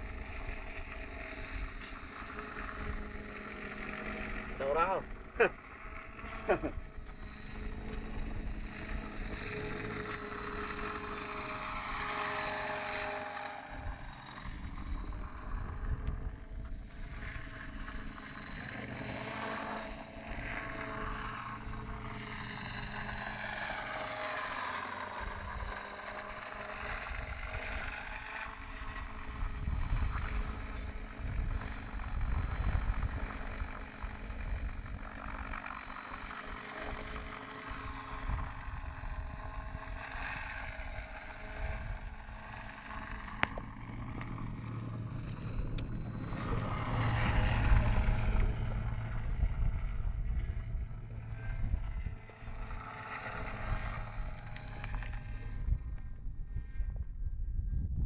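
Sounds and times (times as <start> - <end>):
model helicopter engine whine: 0.0 - 58.0
wind buffeting microphone: 29.0 - 35.1, 38.0 - 58.0.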